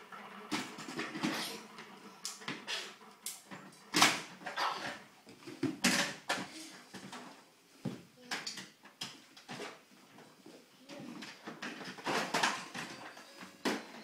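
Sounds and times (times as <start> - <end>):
plastic toys clattering: 0.5 - 1.6, 3.9 - 7.4, 11.2 - 14.0.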